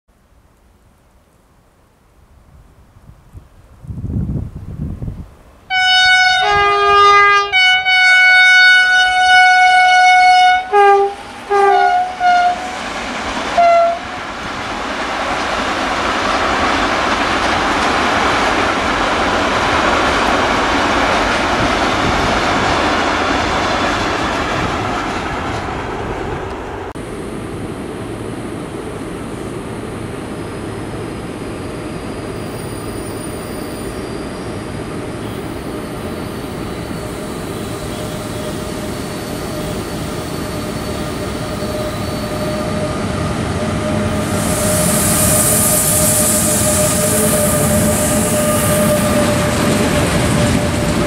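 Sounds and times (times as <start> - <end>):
train rumble and wheel clatter: 2.4 - 51.0
train horn blasts: 5.7 - 12.8, 13.5 - 14.2, 40.4 - 51.0.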